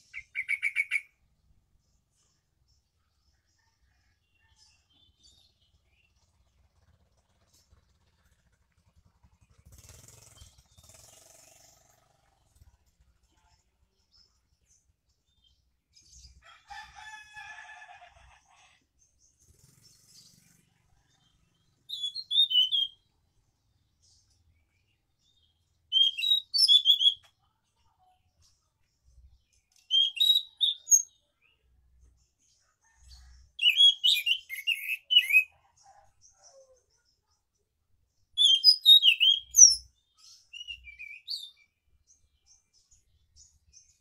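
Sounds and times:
bird warbling song: 0.0 - 1.2, 19.3 - 23.0, 24.8 - 27.5, 29.2 - 31.6, 32.8 - 37.1, 38.4 - 41.7.

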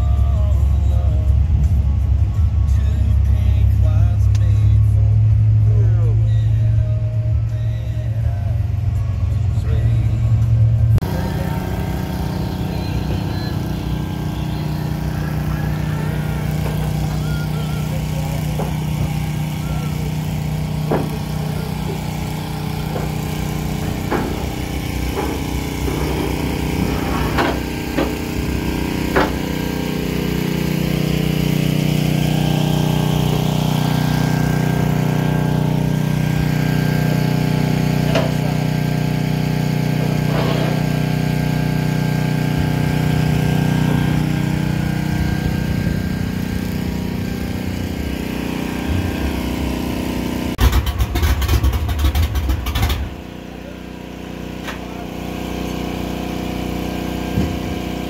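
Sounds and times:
engine idling: 0.0 - 58.0
metal trailer ramp clanking: 11.4 - 29.9, 37.8 - 38.7, 40.0 - 41.1.

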